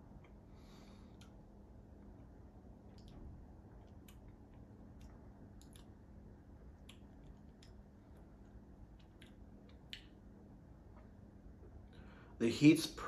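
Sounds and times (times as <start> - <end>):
faint steady hum: 0.0 - 13.0
mouth clicks and lip smacks: 2.8 - 11.2.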